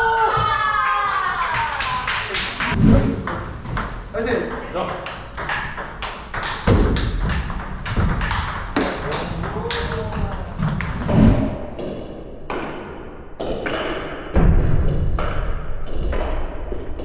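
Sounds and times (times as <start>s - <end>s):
ball clicking off paddles: 4.8s - 11.1s
ball bouncing on table: 4.9s - 11.1s.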